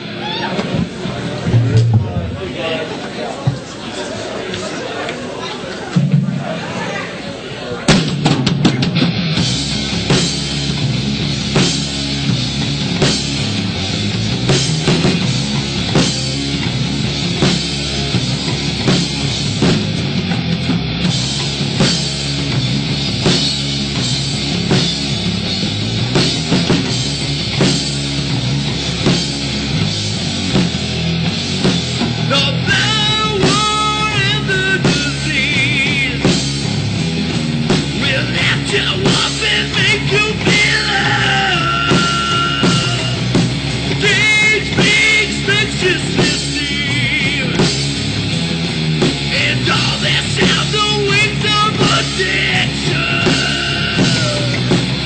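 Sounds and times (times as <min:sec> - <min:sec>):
steady drum beat: 0:00.0 - 0:02.6, 0:07.9 - 0:55.0
heavy rock band playing: 0:00.0 - 0:03.6, 0:07.8 - 0:55.0
vocalist singing: 0:32.3 - 0:36.4, 0:38.0 - 0:47.8, 0:49.3 - 0:54.8.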